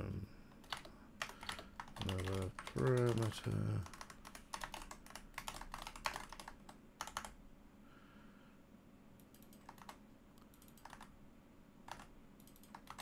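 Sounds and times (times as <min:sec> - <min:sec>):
typing on computer keyboard: 0:00.6 - 0:07.4, 0:09.2 - 0:11.1, 0:11.9 - 0:13.0.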